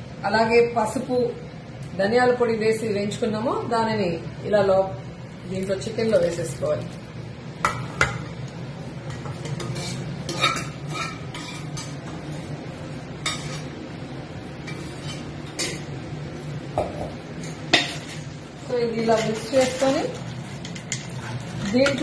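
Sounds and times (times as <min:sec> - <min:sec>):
steel spatula scraping a pan: 0:09.1 - 0:12.5, 0:13.2 - 0:13.8, 0:14.6 - 0:15.8, 0:17.7 - 0:22.0.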